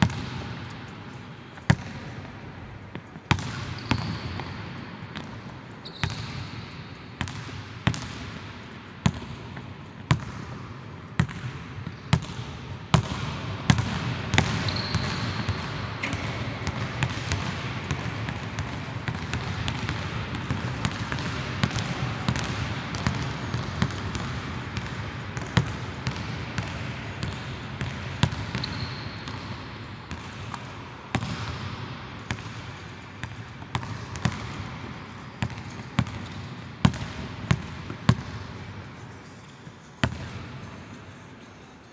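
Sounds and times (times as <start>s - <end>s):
sneakers squeaking on floor: 3.2s - 6.8s, 14.3s - 17.2s, 27.2s - 31.3s.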